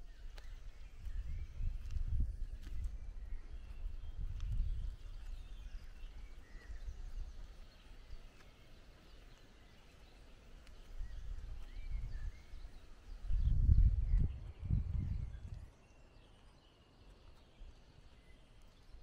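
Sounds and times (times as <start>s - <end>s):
wind gusts buffeting microphone: 0.0s - 8.4s, 10.8s - 15.7s
faint bird chirps: 0.0s - 19.0s.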